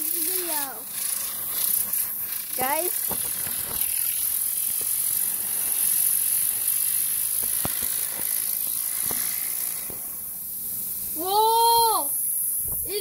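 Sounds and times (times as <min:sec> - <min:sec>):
compressed air hissing: 0:00.0 - 0:13.0.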